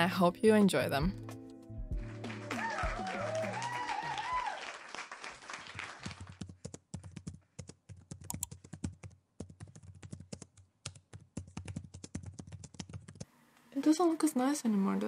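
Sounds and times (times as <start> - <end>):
quick irregular clicks and taps: 6.4 - 13.3.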